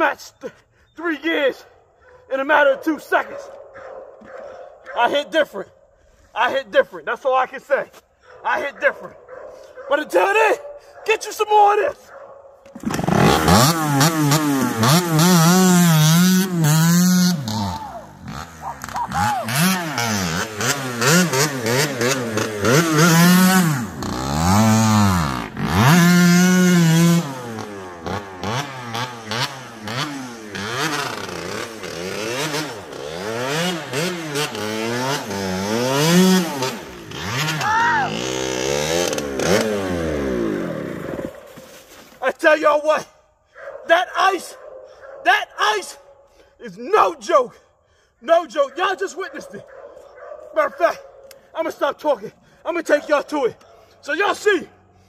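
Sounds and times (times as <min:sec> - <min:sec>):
motorcycle engine revving: 0:12.7 - 0:41.6.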